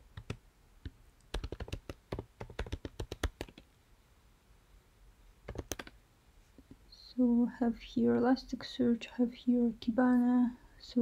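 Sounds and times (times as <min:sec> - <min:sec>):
computer keyboard keystrokes: 0:00.1 - 0:00.4, 0:01.3 - 0:03.7, 0:05.5 - 0:06.0.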